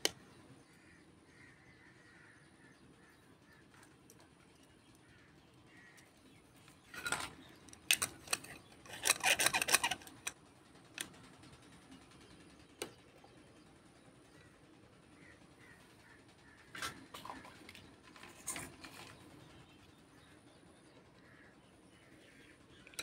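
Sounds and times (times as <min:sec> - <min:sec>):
plastic toy pieces clicking: 0:07.0 - 0:10.4.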